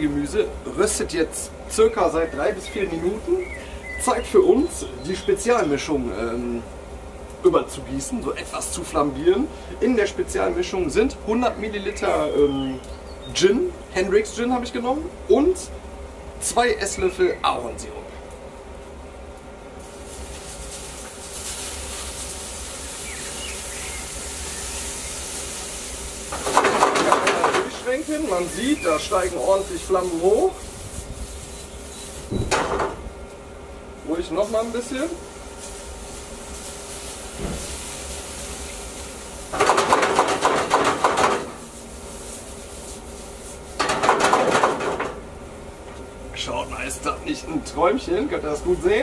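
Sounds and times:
vegetables sizzling on a grill: 2.0 - 15.4, 19.7 - 33.3, 34.0 - 45.8
vegetables rattling in metal grill pan: 20.1 - 23.8, 24.4 - 30.3, 39.4 - 45.3.

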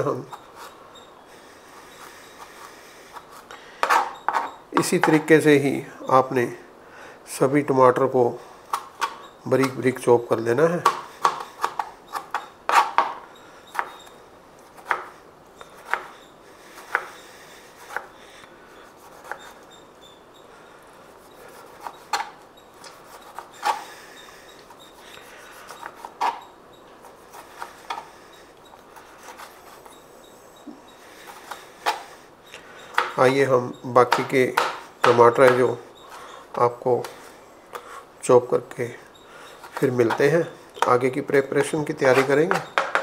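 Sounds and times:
knife chopping on cutting board: 14.8 - 15.1, 32.9 - 33.2, 34.1 - 35.7.

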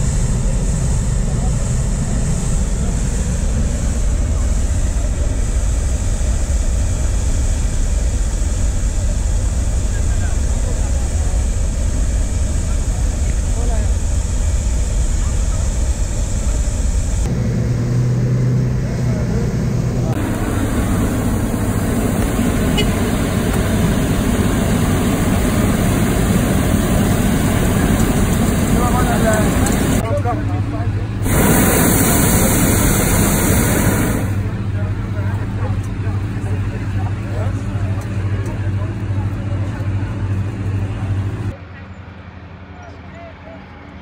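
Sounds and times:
propane burner roaring: 0.0 - 41.6
propane burner firing: 20.0 - 30.3, 31.2 - 37.0.

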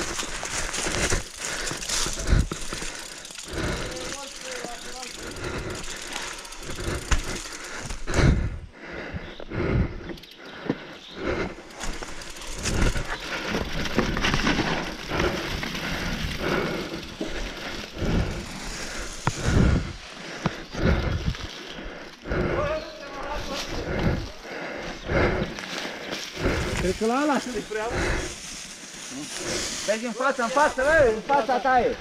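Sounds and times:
bike tyres crunching through leaves: 0.0 - 8.3, 11.5 - 22.2, 22.8 - 32.0.

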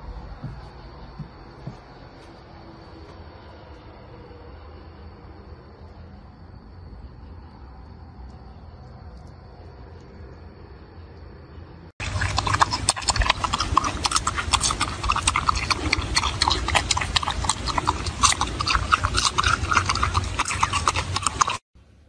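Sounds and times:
marmot crunching cucumber: 12.0 - 21.6.

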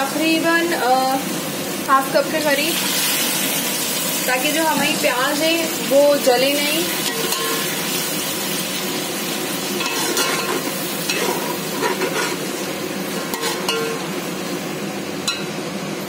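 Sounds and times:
onions sizzling in oil: 0.0 - 16.0
spoon scraping a pot: 9.8 - 12.5, 13.3 - 14.0.

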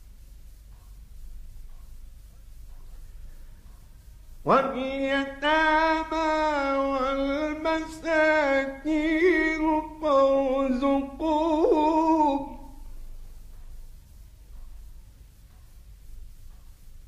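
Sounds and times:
faint low hum: 0.0 - 17.0
man chanting melodically: 4.4 - 12.9.

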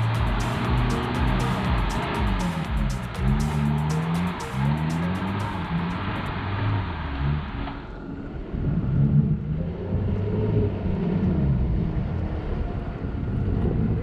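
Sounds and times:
vehicle engine revving: 0.0 - 14.0.

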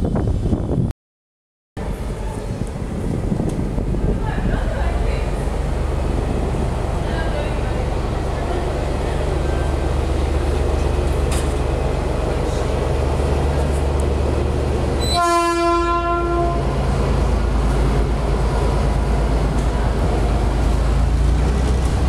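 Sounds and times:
train rumbling: 0.0 - 0.9, 1.8 - 22.0
train horn blast: 15.0 - 16.8.

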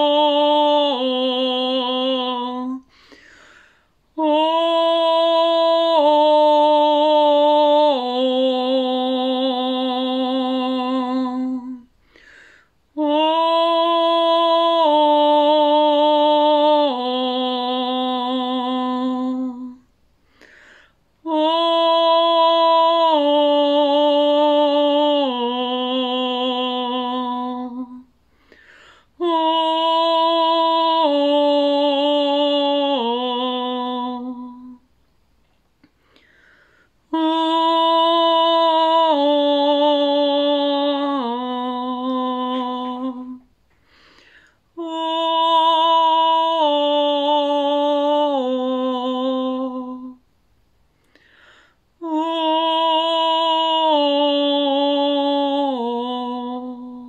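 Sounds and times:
woman singing long notes: 0.0 - 3.3, 4.1 - 11.9, 12.8 - 19.9, 21.2 - 34.9, 37.0 - 43.6, 44.2 - 50.3, 52.0 - 57.0
singer breathing: 2.8 - 4.0, 11.9 - 12.8, 20.2 - 21.1, 28.2 - 29.2, 35.9 - 37.0, 43.7 - 44.7, 50.9 - 52.0.

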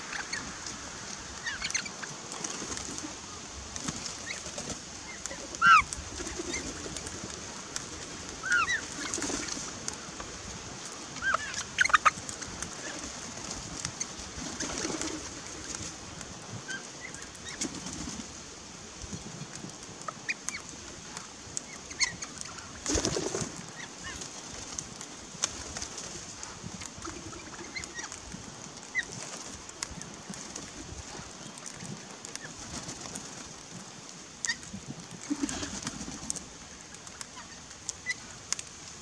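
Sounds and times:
parrots calling: 5.6 - 5.9.

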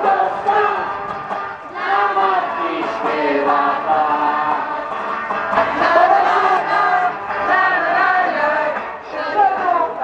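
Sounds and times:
group singing religious song: 0.0 - 10.0.

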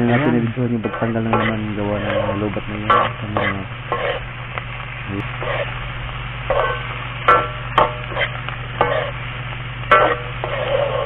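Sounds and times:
spatula scraping a steel wok: 0.0 - 4.3, 5.4 - 5.7, 6.5 - 9.2, 9.9 - 11.0
light sizzle: 0.0 - 11.0
steady low hum: 0.0 - 11.0.

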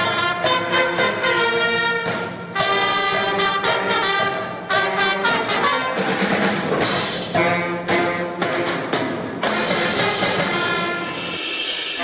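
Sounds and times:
brass band playing: 0.0 - 12.0.

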